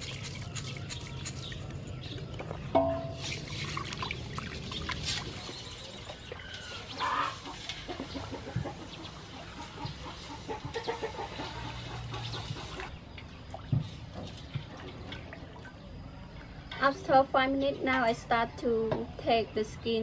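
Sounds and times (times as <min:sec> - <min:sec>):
chicken clucking: 0:06.9 - 0:13.0.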